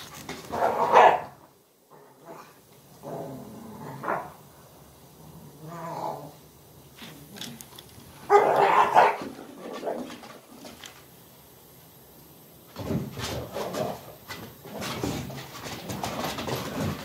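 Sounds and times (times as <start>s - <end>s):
dogs barking: 0.5s - 1.4s, 8.3s - 10.2s
dogs scuffling: 7.0s - 11.1s, 12.8s - 17.0s
dogs play vocalising: 8.2s - 10.8s.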